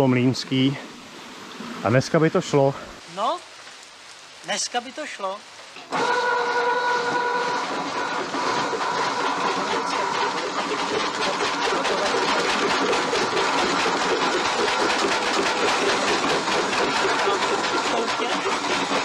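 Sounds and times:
water mill machinery clattering: 4.5 - 19.0.

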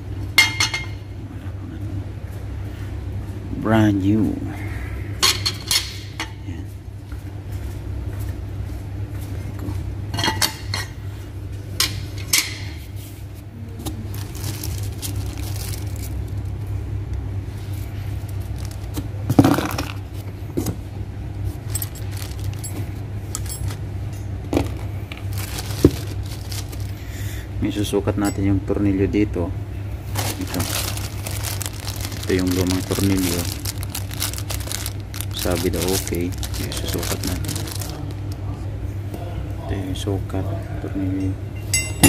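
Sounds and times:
steady low hum: 0.0 - 42.0
steel clutch parts clinking: 21.7 - 23.8.

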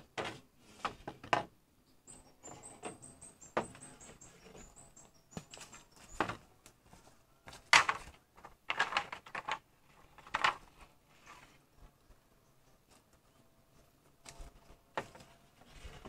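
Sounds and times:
bird chirps: 1.8 - 6.4.

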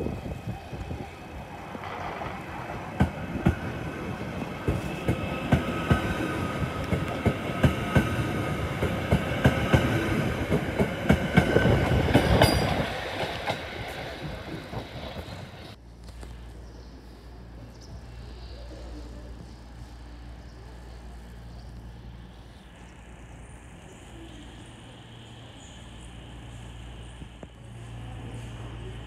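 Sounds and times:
train high whine: 0.0 - 15.8, 17.3 - 29.0
train wheels clicking over rail joints: 1.7 - 15.4.

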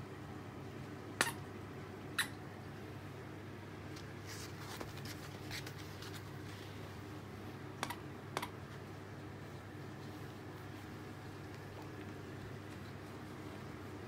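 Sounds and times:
low room hum: 0.0 - 14.0
paws and toy scuffing on mat: 3.9 - 7.1, 8.7 - 14.0.

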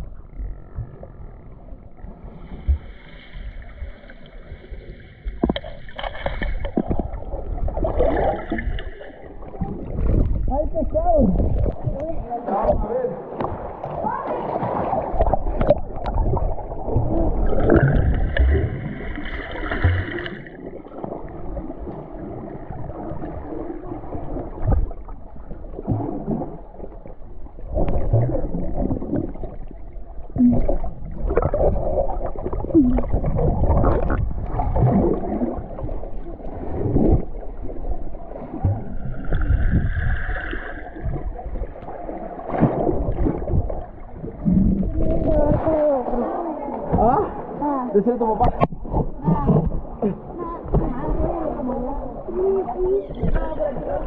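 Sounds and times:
underwater water rushing and bubbling: 0.0 - 54.0
bright bubbling gurgles: 2.5 - 12.4, 13.4 - 46.4
low underwater knocks: 5.2 - 8.9, 9.6 - 20.4, 46.8 - 47.3, 48.4 - 51.5.

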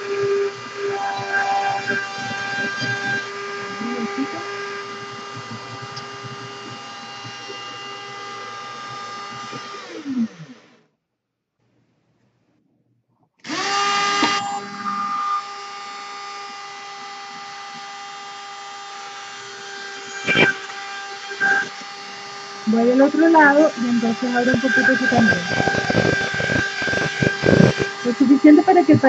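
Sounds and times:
rotary tool whining: 0.0 - 10.9, 13.4 - 29.0.

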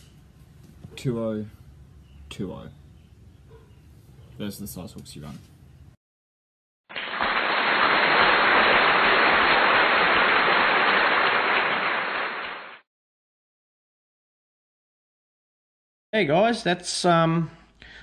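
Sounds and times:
crowd applause: 6.9 - 12.8.

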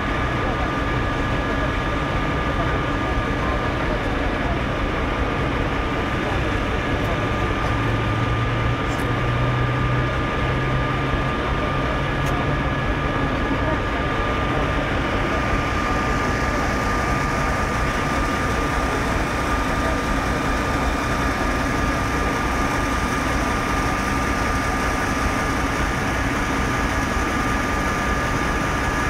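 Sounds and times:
fire engines running: 0.0 - 29.0.

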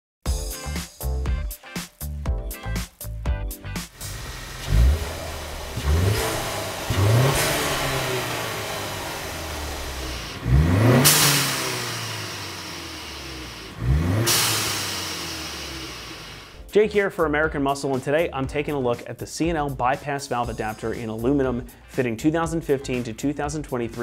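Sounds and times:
sharp hiss of boost venting: 2.7 - 16.6
car engine revving: 3.9 - 16.6.

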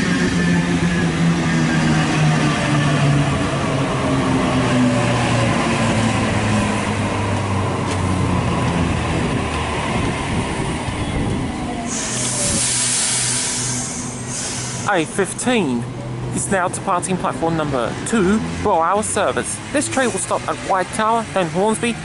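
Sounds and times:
train motors whining: 11.2 - 14.9
sudden hiss: 11.9 - 15.1.

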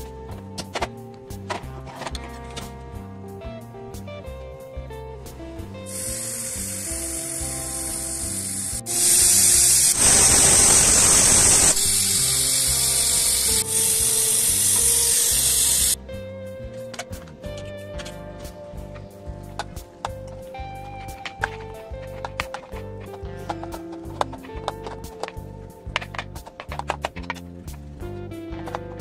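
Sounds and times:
background music: 0.0 - 29.0
pressure cooker steam hiss: 5.9 - 16.0.

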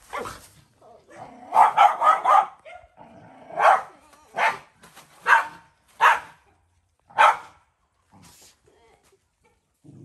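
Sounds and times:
dog barking: 1.5 - 2.9, 3.6 - 6.4, 7.1 - 7.6.

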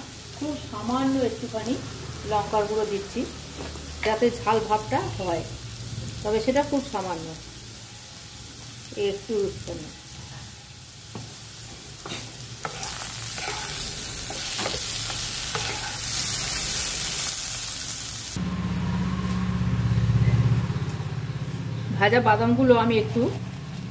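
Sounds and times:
potatoes sizzling in hot oil: 0.0 - 18.4
spatula stirring potatoes: 11.2 - 16.5.

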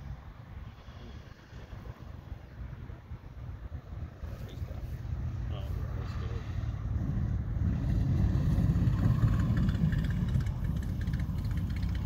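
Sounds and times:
steady low rumble: 0.0 - 12.0
biplane engine idling: 5.6 - 12.0.

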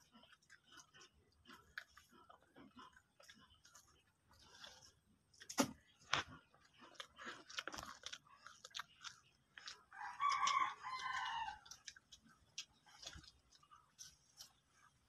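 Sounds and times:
crunching and chewing snacks: 0.0 - 15.0
rooster crowing: 9.9 - 11.7.

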